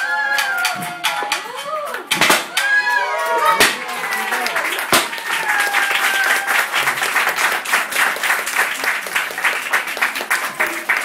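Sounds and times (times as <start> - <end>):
audience applauding: 3.0 - 11.0.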